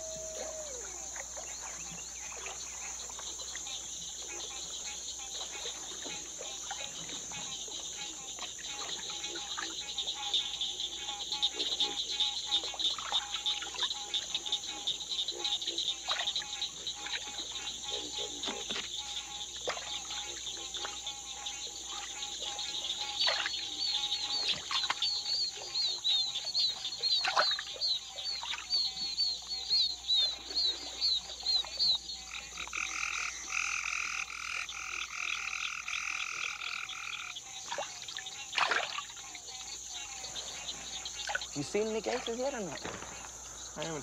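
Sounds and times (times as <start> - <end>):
frogs and toads calling: 0.0 - 44.0
high insect drone: 0.0 - 44.0
sharp falling calls: 41.5 - 44.0.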